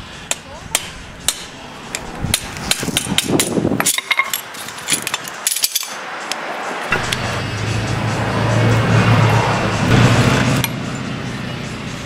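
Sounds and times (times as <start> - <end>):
metallic clicks and clinks: 2.7 - 6.4.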